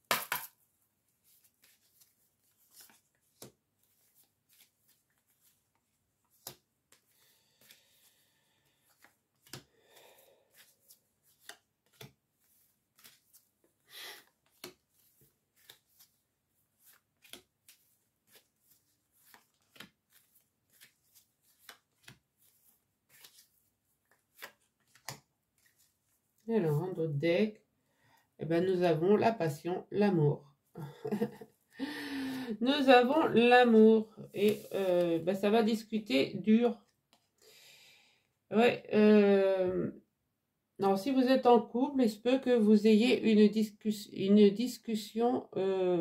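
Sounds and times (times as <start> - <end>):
cards being shuffled: 1.2 - 26.4, 34.3 - 35.4.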